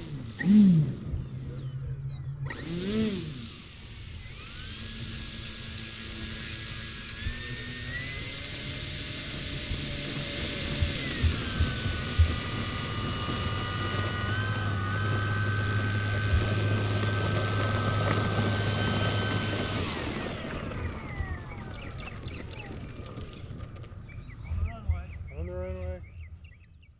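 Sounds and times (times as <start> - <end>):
model plane motor whining: 0.0 - 24.8.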